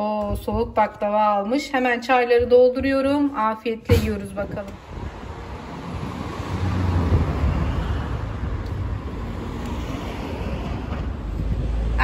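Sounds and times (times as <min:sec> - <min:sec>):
road traffic rumble and hiss: 0:03.9 - 0:12.0.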